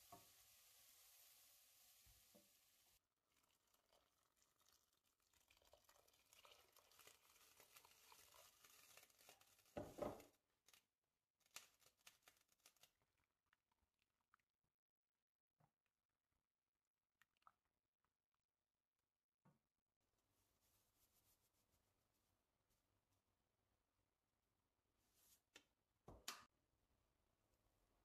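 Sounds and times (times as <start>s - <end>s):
water poured into hot pot hissing: 0.0s - 9.7s
lentils sizzling in a pot: 0.0s - 10.4s.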